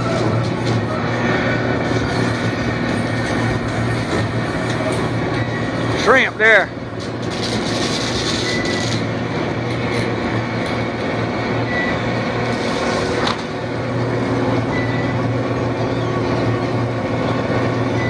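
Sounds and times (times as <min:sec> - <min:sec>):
engine and machinery hum: 0:00.0 - 0:18.0
high squeaks: 0:07.3 - 0:09.1.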